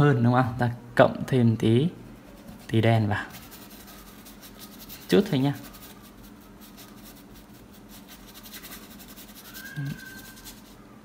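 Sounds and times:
paintbrush scrubbing on canvas: 2.2 - 10.8
faint thin tone: 9.4 - 10.6.

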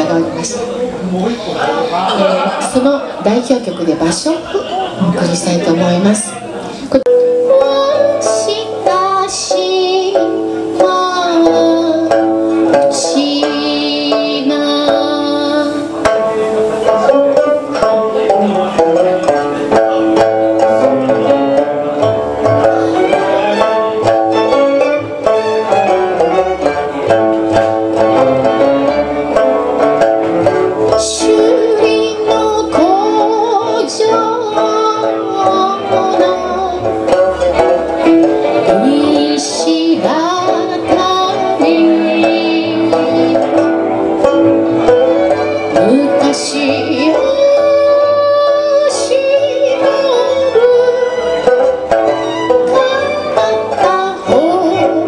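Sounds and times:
plucked lute melody: 0.0 - 55.0
woman singing with vibrato: 6.8 - 16.0, 30.8 - 37.8, 38.5 - 44.0, 45.7 - 51.4, 52.6 - 55.0.

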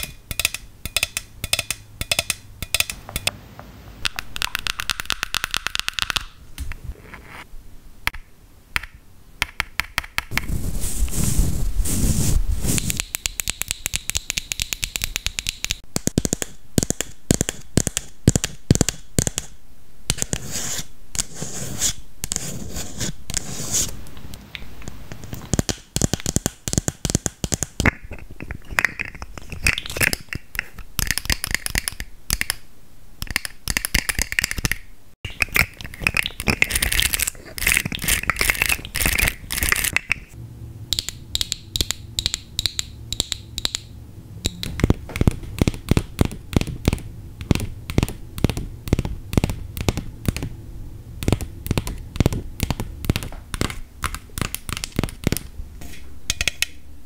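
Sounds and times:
fingernails tapping and scratching: 0.0 - 3.3, 44.5 - 50.5, 51.2 - 55.5.

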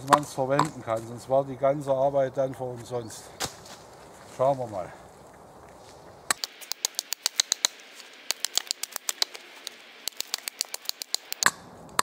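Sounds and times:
hatchet chipping bark: 6.3 - 11.6.

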